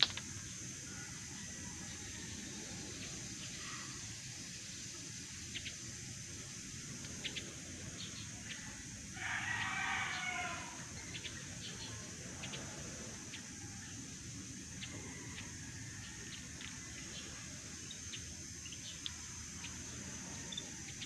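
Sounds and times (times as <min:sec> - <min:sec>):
steady high-pitched hiss: 0:00.0 - 0:21.0
rooster crowing: 0:00.9 - 0:02.8, 0:09.1 - 0:11.0, 0:14.7 - 0:16.8.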